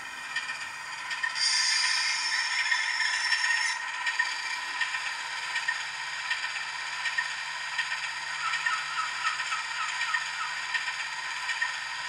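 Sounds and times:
diesel idling through small speaker: 0:04.2 - 0:12.0.

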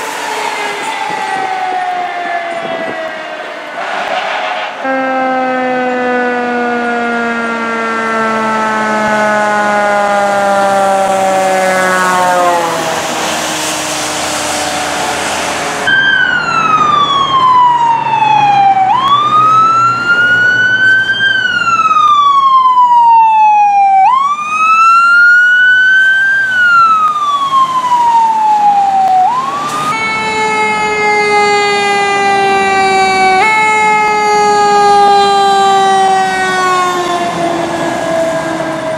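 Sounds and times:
fire engine siren: 0:00.0 - 0:38.9
low siren passing: 0:00.0 - 0:38.9
wail siren rising and falling: 0:00.0 - 0:38.9
tyre hiss on wet road: 0:12.8 - 0:15.9.

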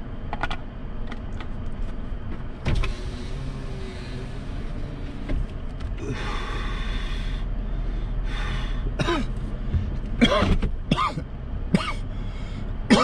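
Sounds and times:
truck engine humming: 0:00.0 - 0:13.0
person coughing: 0:09.0 - 0:09.3, 0:10.2 - 0:12.0.

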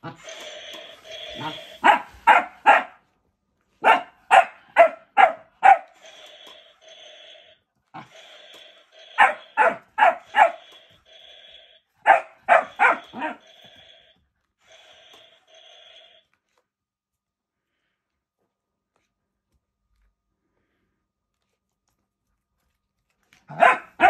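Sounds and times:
toy motor buzzing: 0:00.0 - 0:02.3, 0:05.8 - 0:11.8, 0:12.4 - 0:16.3
small dog barking: 0:01.4 - 0:03.0, 0:03.8 - 0:05.9, 0:09.2 - 0:10.6, 0:12.0 - 0:13.4, 0:23.5 - 0:24.0.

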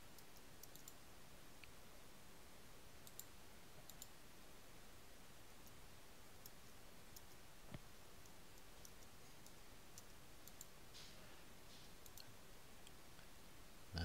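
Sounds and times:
faint computer mouse clicks: 0:00.1 - 0:01.0, 0:03.0 - 0:04.1, 0:06.4 - 0:11.1, 0:11.7 - 0:13.0.

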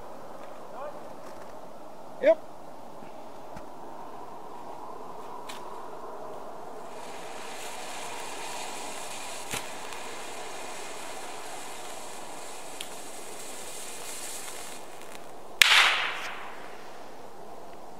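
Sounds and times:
firework fountain hissing: 0:06.4 - 0:17.9
small firework pops: 0:06.8 - 0:16.8
loud firework bang: 0:15.6 - 0:16.8.

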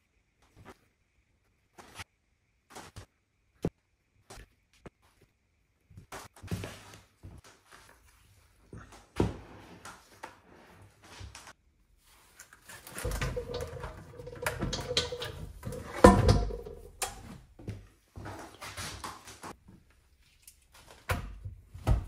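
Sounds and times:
plastic bucket scraping metal pot: 0:12.9 - 0:16.9
bucket clunk set down: 0:13.0 - 0:17.0.

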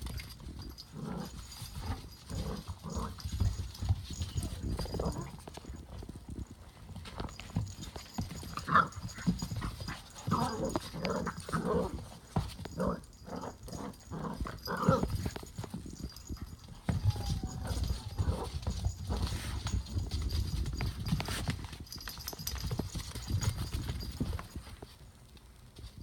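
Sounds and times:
puppies growling and yapping: 0:00.6 - 0:05.6, 0:08.6 - 0:20.0.

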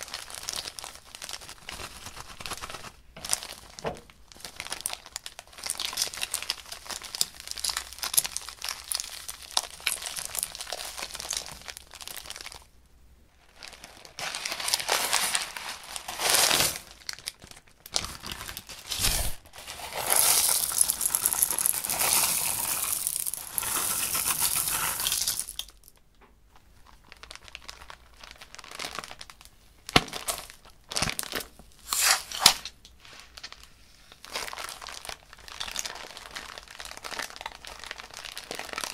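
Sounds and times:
plastic bags crinkling: 0:00.0 - 0:12.7, 0:13.4 - 0:26.0, 0:26.8 - 0:38.9
plastic beads pouring into glass dish: 0:19.0 - 0:25.9.

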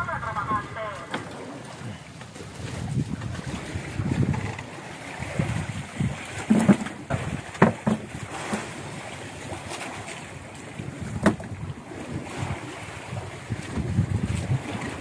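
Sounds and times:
sea washing around a boat: 0:00.0 - 0:15.0
wind rumbling on microphone: 0:00.0 - 0:15.0
knocks on a boat deck: 0:06.5 - 0:08.1, 0:11.2 - 0:11.6.

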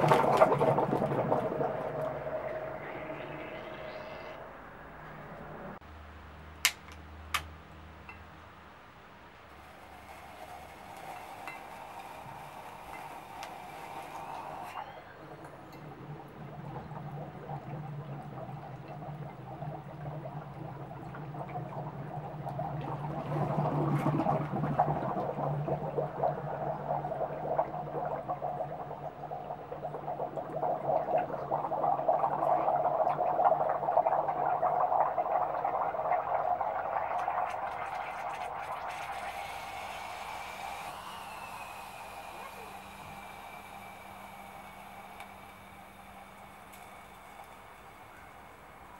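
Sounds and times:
sparkler fizzing underwater: 0:00.0 - 0:03.7, 0:09.6 - 0:15.4, 0:22.6 - 0:48.9.

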